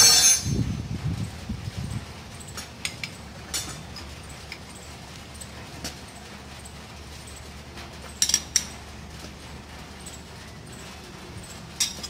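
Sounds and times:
spanners clinking on metal: 0.0 - 0.6, 8.2 - 8.8, 11.4 - 12.0.

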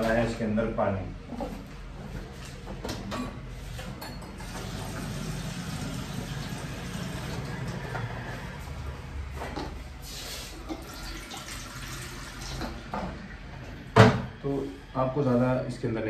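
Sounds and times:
kitchen utensils clinking: 3.0 - 4.9
water pouring into a pan: 4.5 - 7.7, 10.6 - 12.9.

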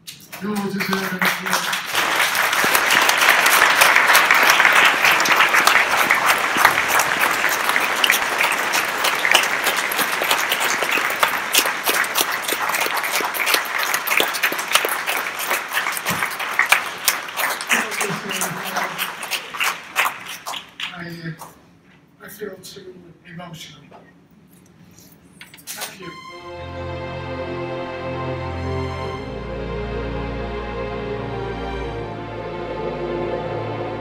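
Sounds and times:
audience applauding: 0.2 - 21.6.

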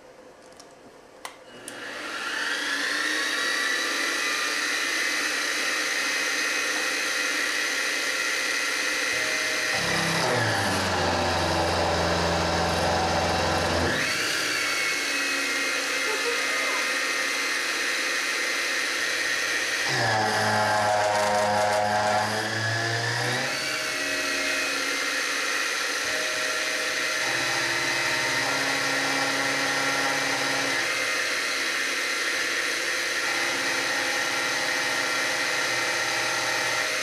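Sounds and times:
end mill cutting aluminum: 9.1 - 17.7, 18.6 - 37.0.

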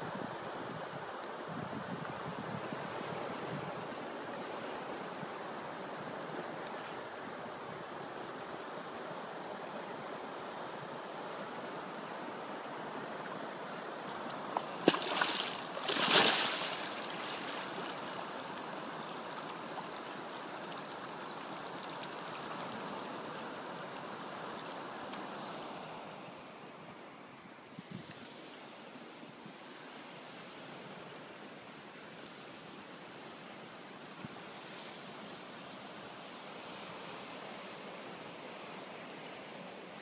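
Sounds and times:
river water rushing: 2.6 - 27.4
loud long splash: 14.6 - 18.0.

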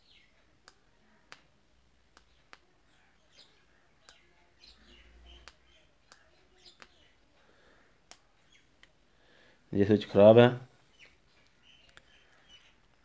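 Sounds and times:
faint birds chirping: 0.0 - 13.0
sharp clicks: 5.4 - 7.0.

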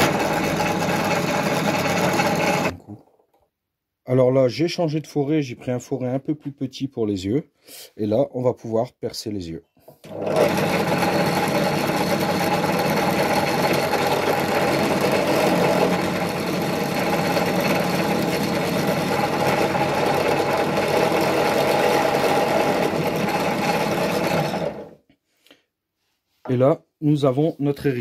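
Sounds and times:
drill press boring wood: 0.0 - 2.8, 10.0 - 25.0.

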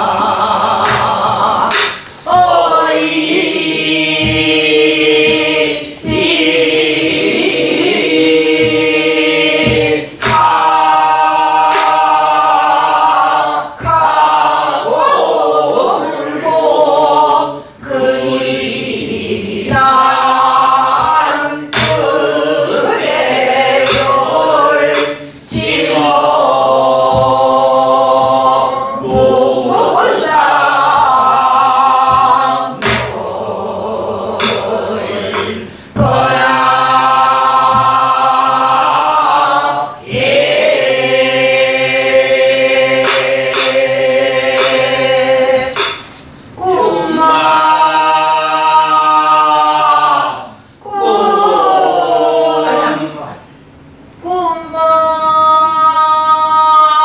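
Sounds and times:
barrel drums struck with sticks: 0.0 - 15.3, 19.1 - 46.4
people singing folk song together: 0.0 - 57.0.

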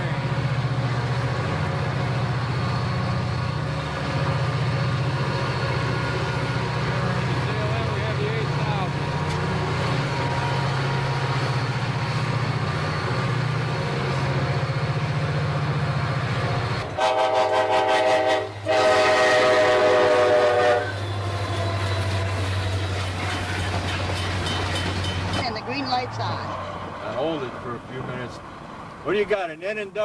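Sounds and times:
locomotive engine drone: 0.0 - 29.3
locomotive air horn blasts: 17.0 - 22.4.

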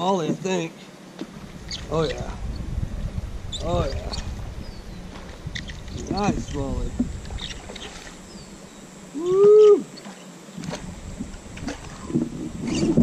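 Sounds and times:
man hooting: 9.1 - 9.9.

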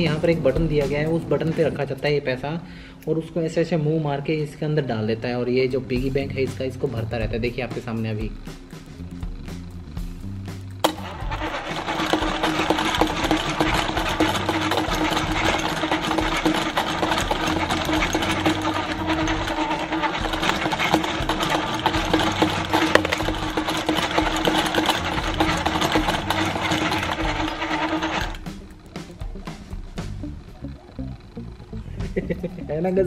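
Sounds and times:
toy motor and gears humming: 9.2 - 33.0.

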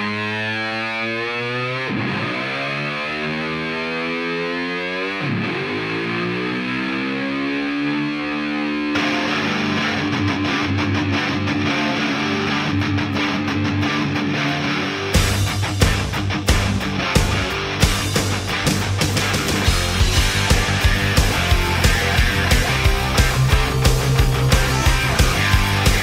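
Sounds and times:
distorted electric guitar: 0.0 - 26.0
heavy rock band with drums: 8.9 - 26.0.

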